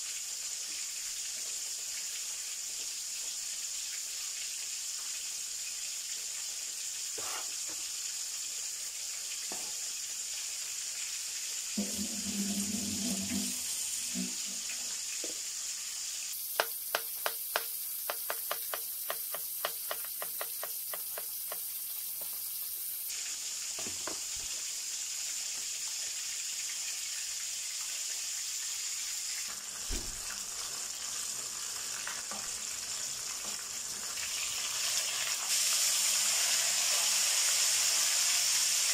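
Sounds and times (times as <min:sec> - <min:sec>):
oil sizzling: 0:00.0 - 0:38.9
cleaver chopping on cutting board: 0:16.6 - 0:22.3.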